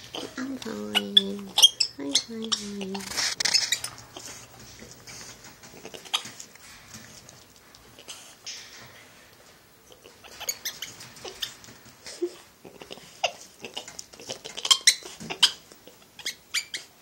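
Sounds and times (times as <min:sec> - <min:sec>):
monkey squeaking and chirping: 0:00.8 - 0:04.0, 0:10.3 - 0:11.6, 0:16.2 - 0:16.9.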